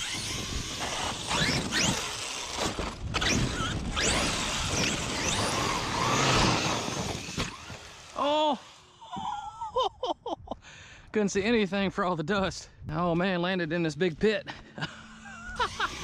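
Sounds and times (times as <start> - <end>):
electric motor whining: 0.0 - 9.0, 15.0 - 16.0
tyres tearing through loose dirt: 0.0 - 9.1, 15.6 - 16.0.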